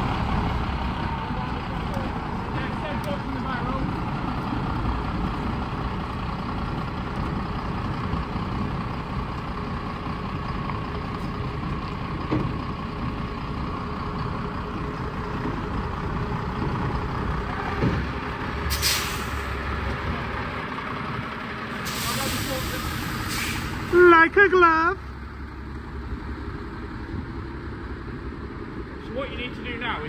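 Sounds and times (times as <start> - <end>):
diesel truck engine running: 0.0 - 30.0
air brakes hiss: 18.7 - 19.6, 21.8 - 24.0.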